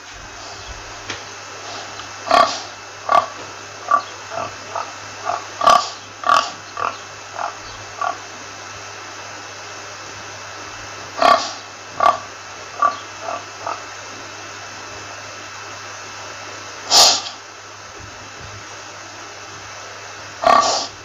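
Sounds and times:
steady hiss: 0:00.0 - 0:21.0
pigs grunting: 0:01.7 - 0:08.4, 0:11.1 - 0:14.0, 0:20.4 - 0:21.0.

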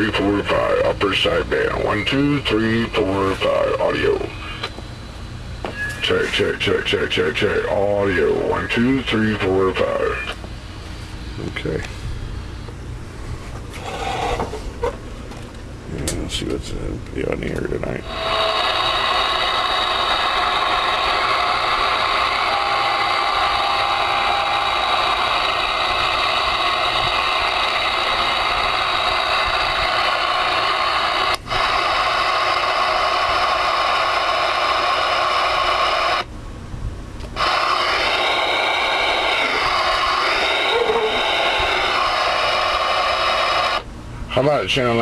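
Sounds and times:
steady whistling tones: 0:00.0 - 0:04.8, 0:05.6 - 0:10.4, 0:18.0 - 0:36.2, 0:37.4 - 0:43.8
radio static hiss: 0:00.0 - 0:12.8, 0:16.2 - 0:36.3, 0:37.4 - 0:45.0.

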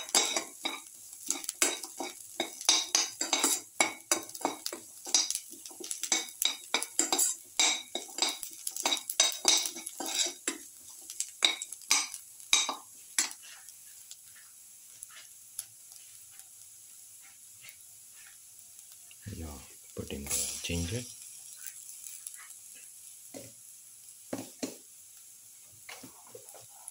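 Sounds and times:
metal spatula scraping a wok: 0:00.0 - 0:10.6, 0:11.4 - 0:15.3, 0:17.2 - 0:18.4
faint sizzle: 0:00.0 - 0:26.9.

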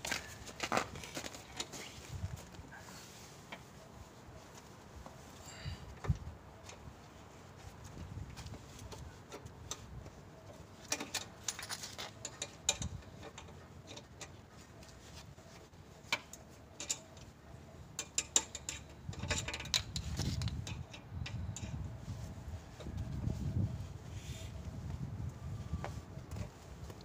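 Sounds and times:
metal clicks of jack crank: 0:18.0 - 0:21.7.

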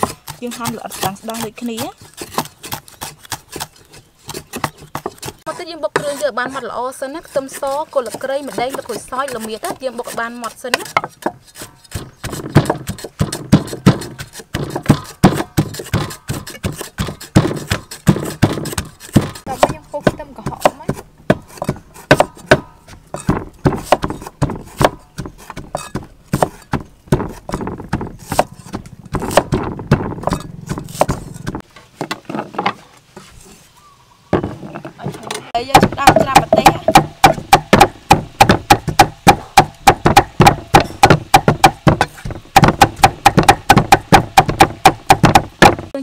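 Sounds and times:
cleaver knocking on wooden board: 0:10.7 - 0:32.8, 0:34.4 - 0:45.9
blade scraping: 0:24.1 - 0:31.6.

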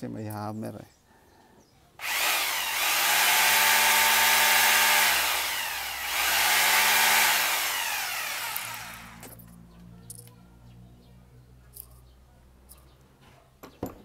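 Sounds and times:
electric hammer drill whining: 0:02.0 - 0:09.3.

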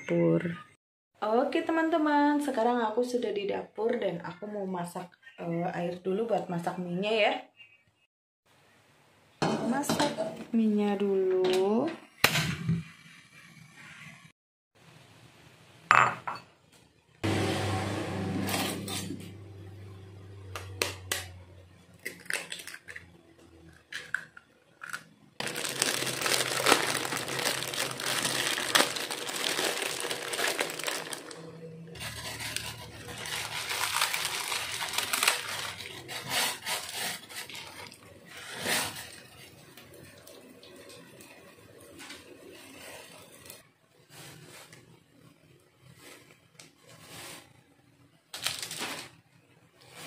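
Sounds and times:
ceramic bowl clinking: 0:15.9 - 0:16.5
plastic packet crinkling: 0:22.0 - 0:23.0, 0:24.8 - 0:38.0, 0:48.3 - 0:49.2.

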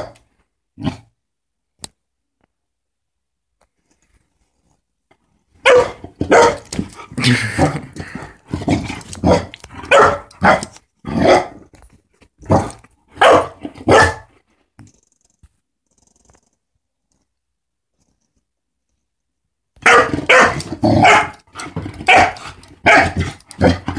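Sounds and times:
puppy barking: 0:05.6 - 0:06.7, 0:09.2 - 0:11.6, 0:12.5 - 0:14.3, 0:19.8 - 0:23.9.

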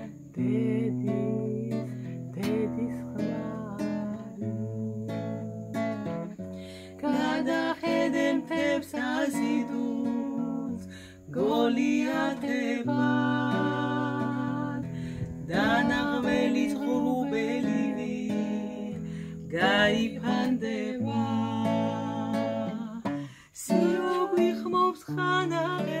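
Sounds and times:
acoustic guitar strumming: 0:00.0 - 0:26.0
woman singing: 0:00.0 - 0:26.0.

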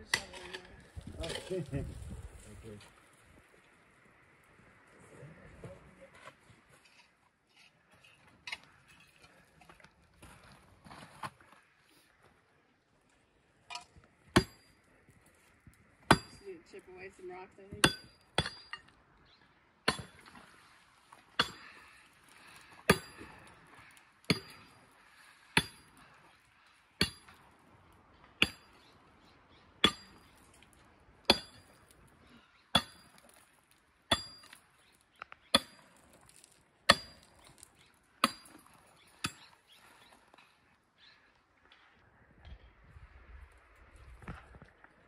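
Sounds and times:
mattock striking rock: 0:16.1 - 0:16.4.

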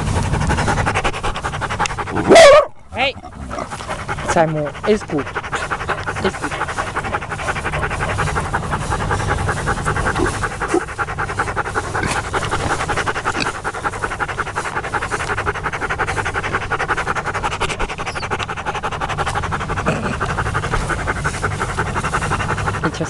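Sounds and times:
pigs chewing grass: 0:00.0 - 0:23.0
pigs snuffling: 0:00.0 - 0:23.0.

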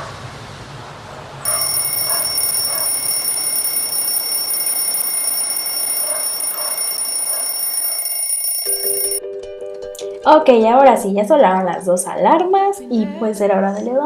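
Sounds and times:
phone alarm high-pitched tone: 0:01.5 - 0:09.2.

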